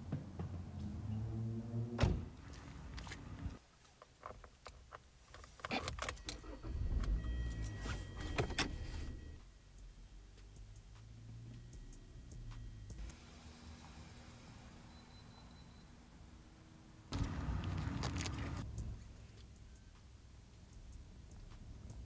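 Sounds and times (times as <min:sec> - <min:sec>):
car keys jangling: 0:04.3 - 0:08.8
dashboard warning tone: 0:06.2 - 0:09.4.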